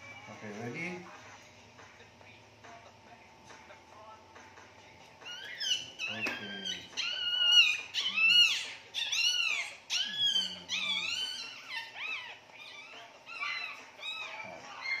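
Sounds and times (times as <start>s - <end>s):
puppy crying in high squeals: 5.2s - 15.0s.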